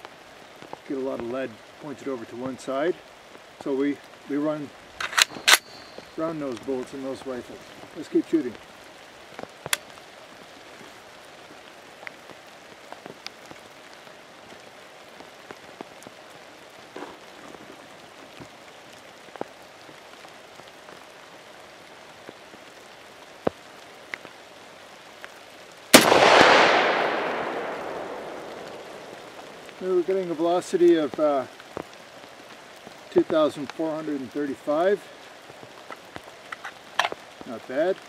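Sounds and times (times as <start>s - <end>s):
raindrops ticking: 0.0s - 38.0s
steady rain falling: 0.0s - 38.0s
rifle shot with echo: 25.9s - 29.7s.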